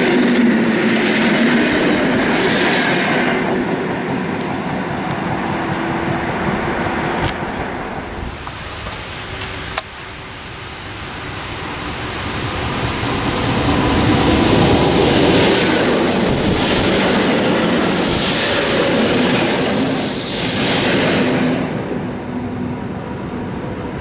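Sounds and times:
train cars clattering: 0.0 - 9.9, 13.7 - 22.2
electric train passing: 0.0 - 24.0.

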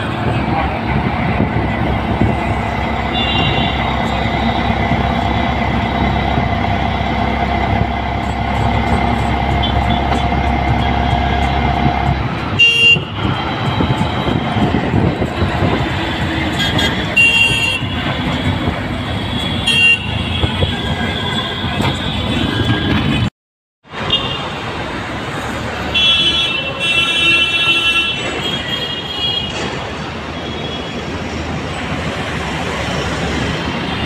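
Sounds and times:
road traffic engine rumble: 0.0 - 23.3, 23.9 - 34.0
vehicle horns tooting: 3.0 - 4.9, 12.5 - 14.5, 16.5 - 18.4, 19.2 - 23.3.

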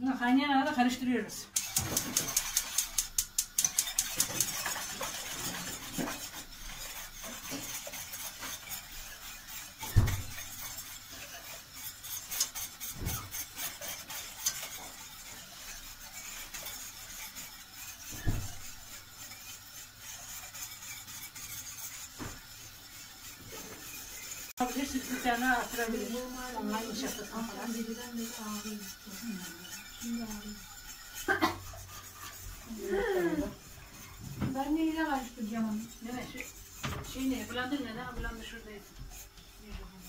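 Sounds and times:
spoon scraping metal pot: 0.0 - 40.0
gas hob igniter clicking: 1.5 - 3.8.

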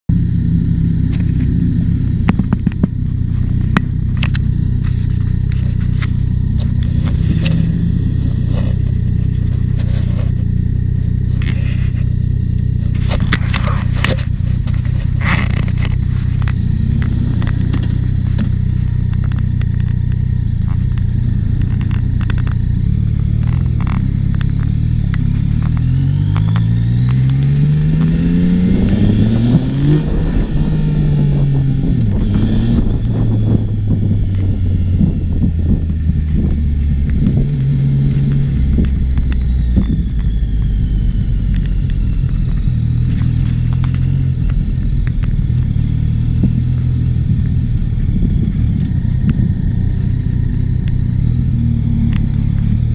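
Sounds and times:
motorcycle accelerating: 0.1 - 52.9
motorcycle engine idling: 0.1 - 52.9
handling clicks and scrapes: 1.0 - 30.1, 41.5 - 47.6.

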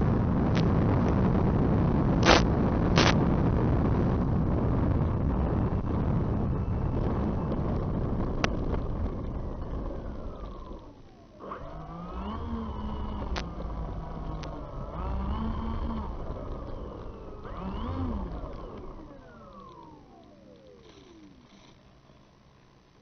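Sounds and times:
rushing wind noise: 0.0 - 11.0
model plane motors whining: 3.9 - 22.3
sharp clicks: 15.7 - 21.8.

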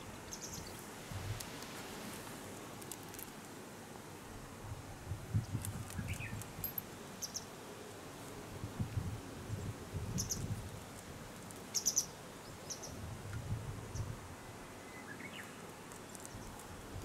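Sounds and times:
small birds chirping: 0.2 - 0.8, 5.4 - 7.5, 10.1 - 10.5, 11.6 - 13.0, 14.8 - 16.8.

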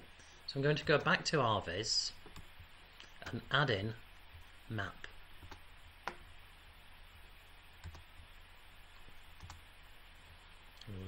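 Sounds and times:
faint steady low hum: 0.0 - 11.0
computer mouse clicking: 7.8 - 8.1, 9.3 - 9.6.

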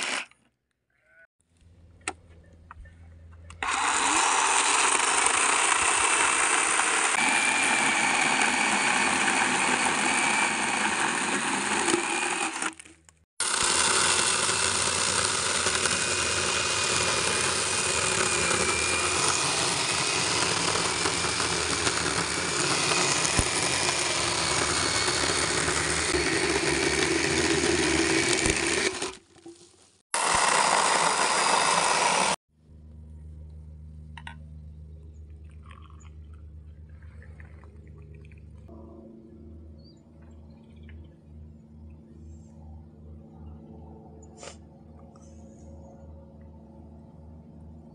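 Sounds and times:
chainsaw cutting a log: 0.0 - 0.3, 3.6 - 29.2, 30.2 - 32.4.

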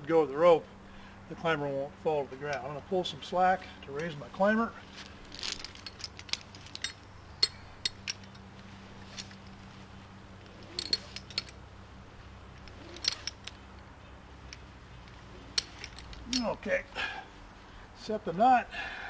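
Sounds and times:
climbing hardware clinking: 2.4 - 16.9
rope pulled through belay device: 10.4 - 11.6, 12.6 - 13.7.

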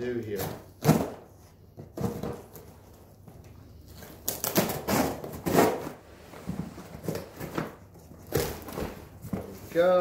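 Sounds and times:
packing tape tearing: 3.9 - 6.0, 7.0 - 8.9.

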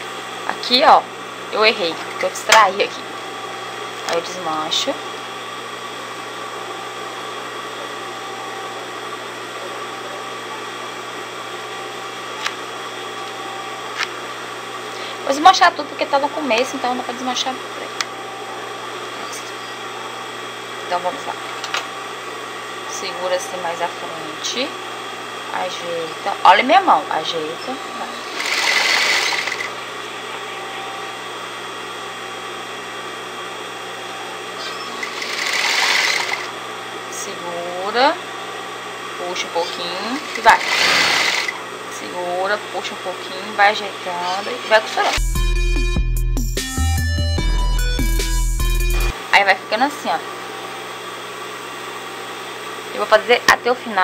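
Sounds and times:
sewing machine motor humming: 26.0 - 30.1, 34.4 - 36.6, 39.5 - 41.7.

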